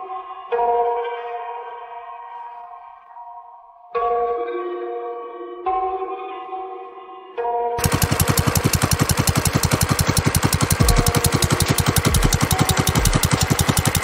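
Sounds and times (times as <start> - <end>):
small engine idling: 7.8 - 14.0.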